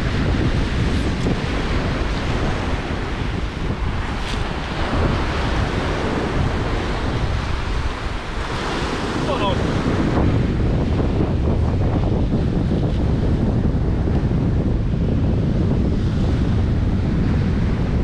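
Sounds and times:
wind buffeting microphone: 0.0 - 18.0
waves breaking on rocks: 0.2 - 10.2.

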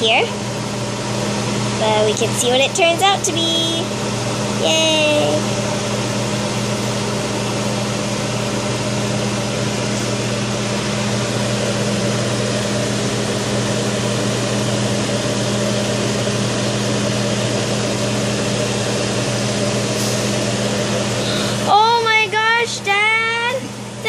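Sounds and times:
electric fan running: 0.0 - 24.0.

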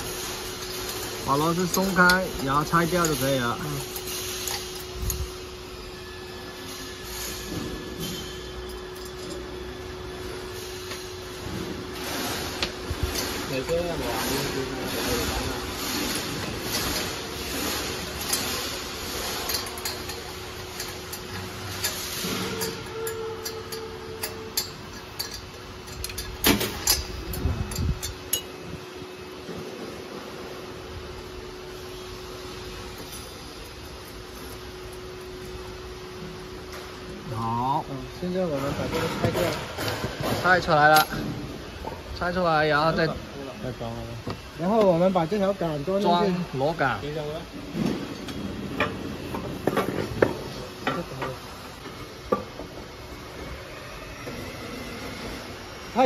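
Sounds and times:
background hum: 7.2 - 37.4
metal hopper clinking and knocking: 13.1 - 28.6.

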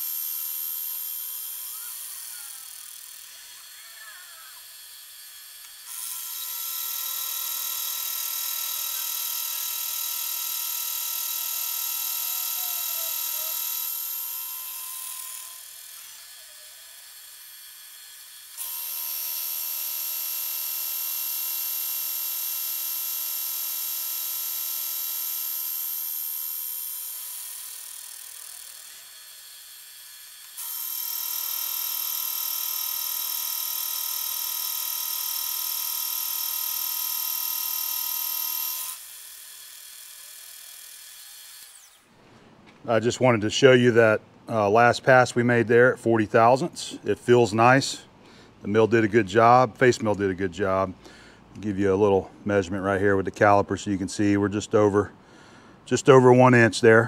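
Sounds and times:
milling machine whine: 0.0 - 42.1.

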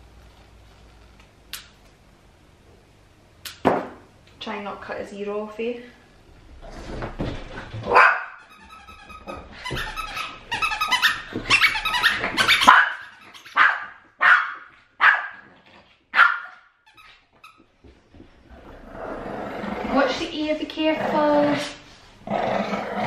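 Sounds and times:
small dog barking: 7.9 - 8.4, 12.6 - 15.4, 16.1 - 16.7.

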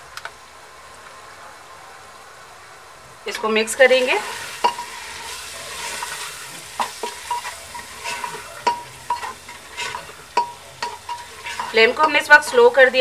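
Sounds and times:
onions sizzling in hot oil: 3.3 - 13.0
utensil knocking and scraping pot: 4.2 - 13.0.

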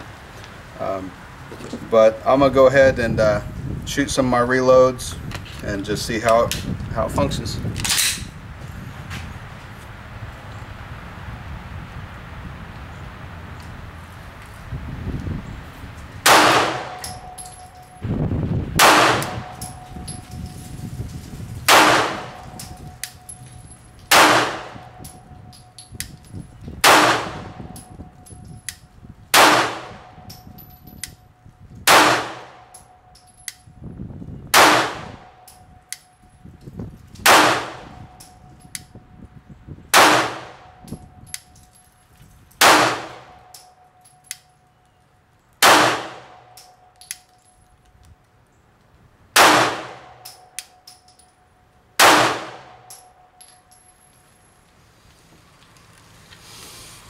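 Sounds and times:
pistol shots: 16.2 - 17.3, 18.8 - 19.8, 21.7 - 22.5, 24.1 - 25.0, 26.8 - 27.6, 29.3 - 30.1, 31.9 - 32.7, 34.5 - 35.3, 37.2 - 38.0, 40.0 - 40.6, 42.6 - 43.5, 45.6 - 46.6, 49.4 - 50.4, 52.0 - 52.9
metallic ring: 17.0 - 18.2, 19.4 - 20.8, 22.4 - 24.1, 52.8 - 54.6.

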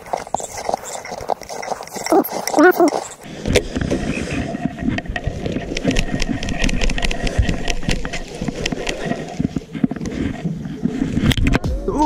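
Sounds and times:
fishing line clicks and rustles: 0.0 - 11.6.

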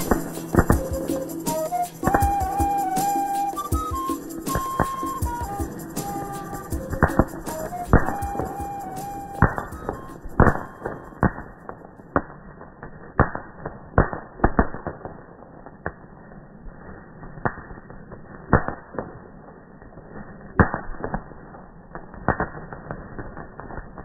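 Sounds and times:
firework fountain hissing: 0.0 - 12.0
sharp firework pops: 0.0 - 16.1, 17.4 - 19.2, 20.5 - 24.0.

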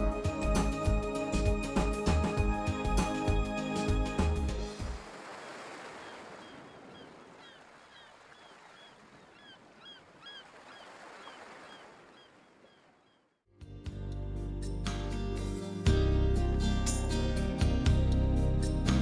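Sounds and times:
sea surf washing in: 1.5 - 8.6
chirping bird calls: 6.0 - 13.3.

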